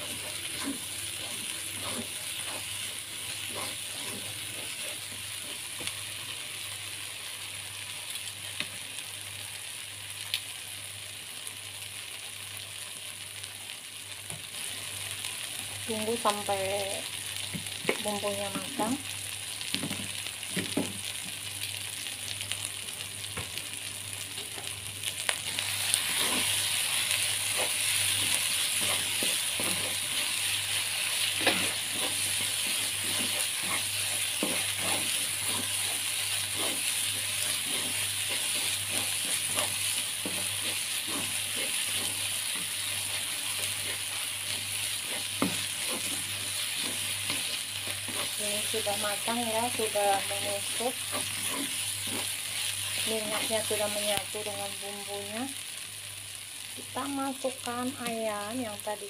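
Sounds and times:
spatula scraping wok: 0:00.0 - 0:06.4, 0:25.5 - 0:54.8
paste sizzling in hot oil: 0:00.0 - 0:59.0.

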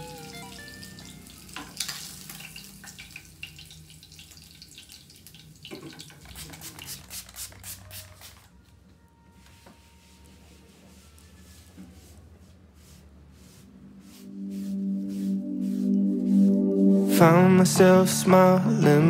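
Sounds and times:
fish sizzling in hot oil: 0:00.8 - 0:06.2.

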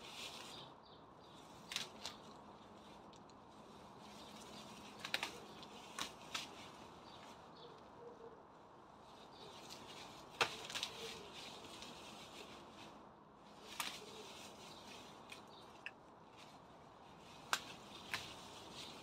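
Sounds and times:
foliage rustling: 0:00.0 - 0:19.0
stems snapping: 0:01.5 - 0:03.4, 0:04.2 - 0:07.8, 0:09.6 - 0:12.0, 0:13.6 - 0:16.0, 0:17.3 - 0:19.0.

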